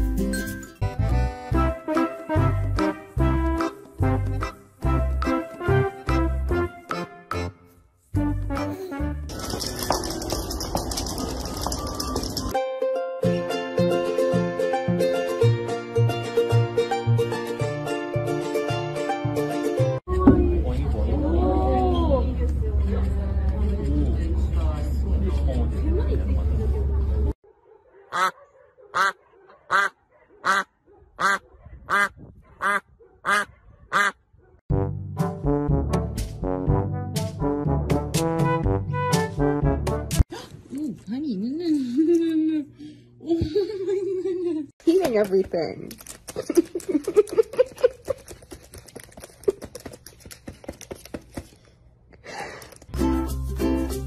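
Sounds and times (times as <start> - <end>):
music: 0.0 - 9.6, 11.7 - 20.0, 34.7 - 40.2, 53.0 - 54.0
duck quacking loudly: 28.1 - 34.2
light music: 53.0 - 54.0.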